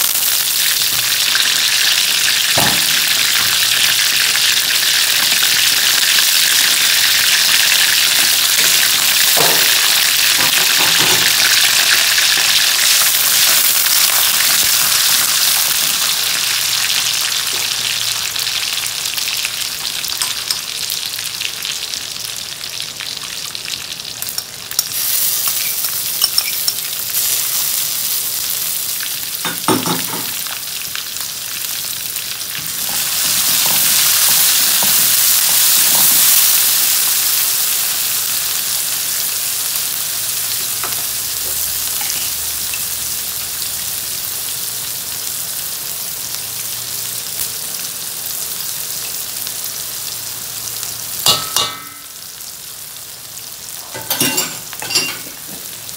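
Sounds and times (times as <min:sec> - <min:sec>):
oil sizzling in a wok: 0:00.0 - 0:55.9.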